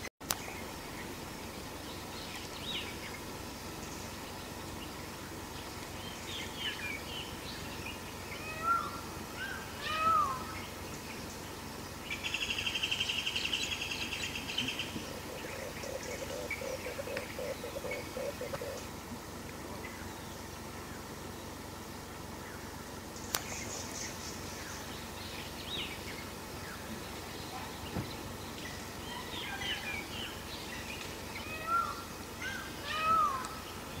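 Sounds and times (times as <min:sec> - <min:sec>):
forest birds chirping: 0:00.0 - 0:34.0
outdoor background hiss: 0:00.0 - 0:34.0
loud arching bird calls: 0:01.8 - 0:34.0
lower bird call repeating: 0:08.2 - 0:10.8, 0:12.2 - 0:19.0, 0:29.1 - 0:34.0.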